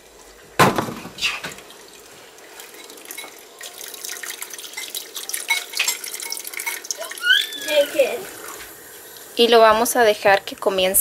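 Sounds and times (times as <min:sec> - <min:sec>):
liquid trickling through strainer: 0:01.2 - 0:09.4.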